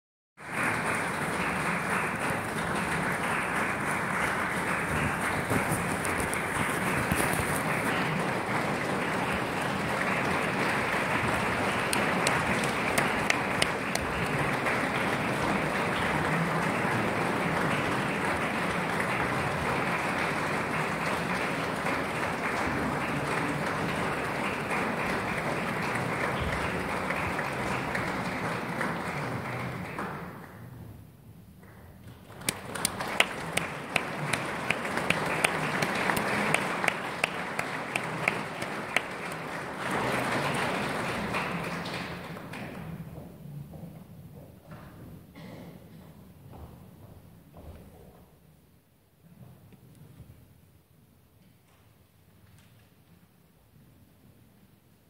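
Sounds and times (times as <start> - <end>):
audience applauding: 0.4 - 30.6, 32.0 - 42.8.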